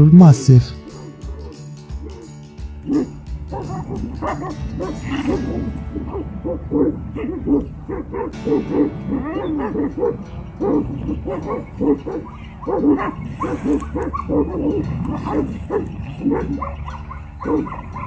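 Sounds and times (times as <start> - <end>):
background music: 0.0 - 18.0
dogs barking and yelping: 0.9 - 18.0.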